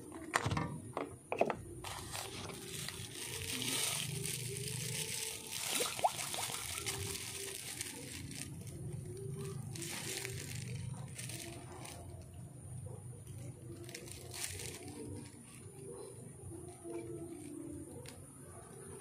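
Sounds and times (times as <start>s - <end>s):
plastic bags crinkling: 1.6s - 18.2s
sharp crackles: 2.0s - 12.4s, 13.4s - 16.2s.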